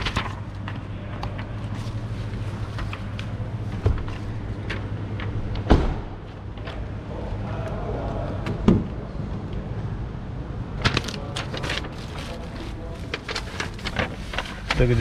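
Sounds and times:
car doors slamming shut: 5.6 - 6.2.

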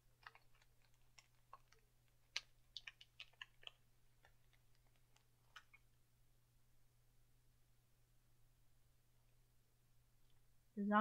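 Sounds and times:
person chewing candy: 0.0 - 6.0.

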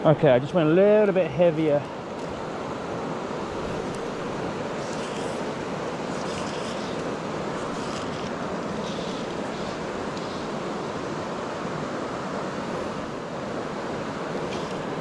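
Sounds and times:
river flowing over rocks: 0.0 - 15.0.

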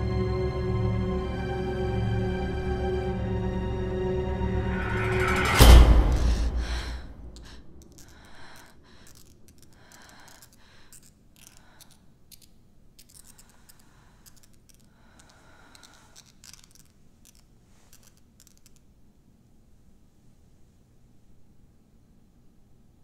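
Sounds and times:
soft airy swells: 0.0 - 8.9
faint scratching and clicking: 7.4 - 18.9.

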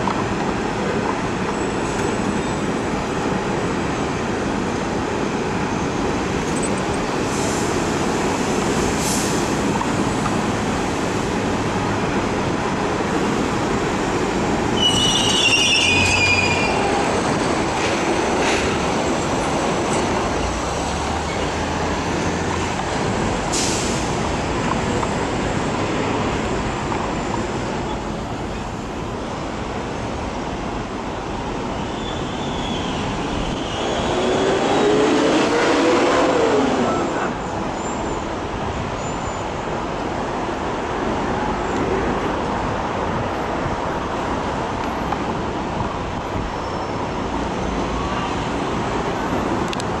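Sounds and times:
train whine: 0.0 - 38.6
street traffic: 0.0 - 50.0
train wheels rumbling on rail: 0.0 - 50.0.

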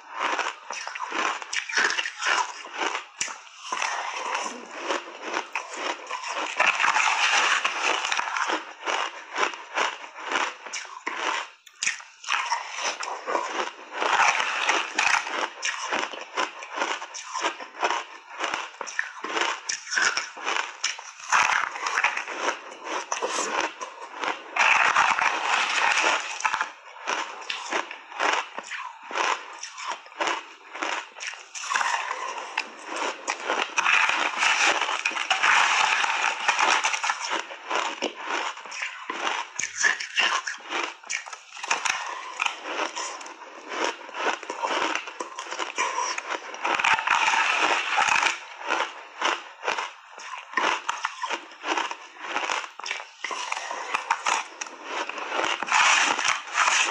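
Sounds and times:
ice crunching while chewed: 0.0 - 56.9.

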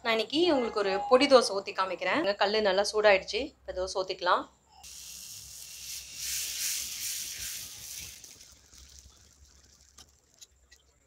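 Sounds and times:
batter sizzling on a griddle: 4.8 - 10.7.

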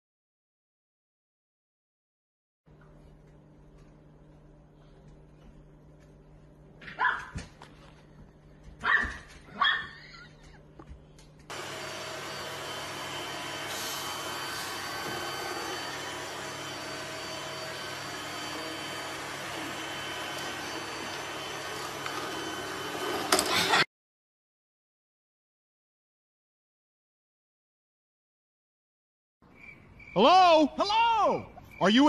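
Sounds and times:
puppy barking: 6.9 - 7.4, 8.8 - 10.1
robot vacuum cleaner whirring: 11.5 - 23.9.

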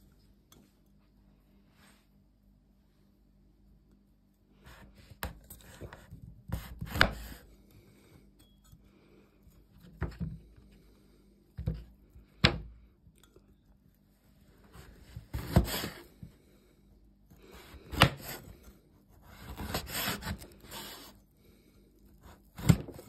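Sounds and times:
knife slicing cured meat: 19.2 - 21.2.

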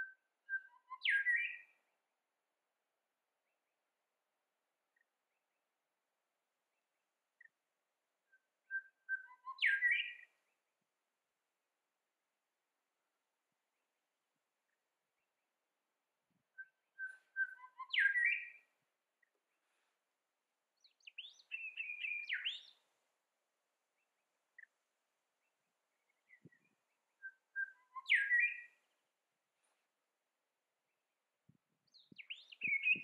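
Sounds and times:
bird singing whistled phrases: 8.7 - 10.2, 16.6 - 18.6, 21.1 - 22.8, 27.2 - 28.8, 32.2 - 33.0.

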